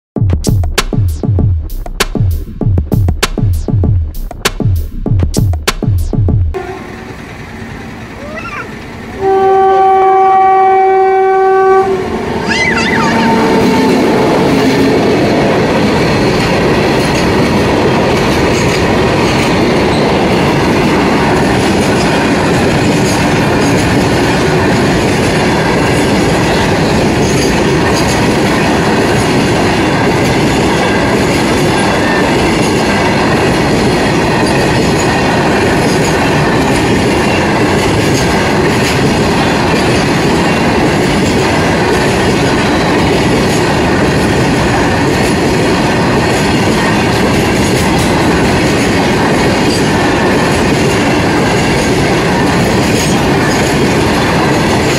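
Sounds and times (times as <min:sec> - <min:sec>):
train horn: 0:06.6 - 0:07.3, 0:09.1 - 0:12.5, 0:13.1 - 0:15.1
train wagons clickety-clack: 0:12.5 - 0:54.9.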